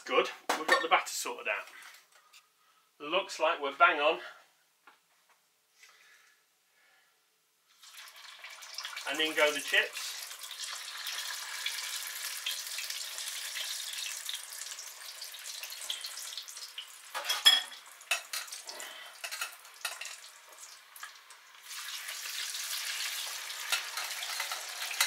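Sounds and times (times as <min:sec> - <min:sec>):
potato chips sizzling in hot oil: 0:07.7 - 0:25.0.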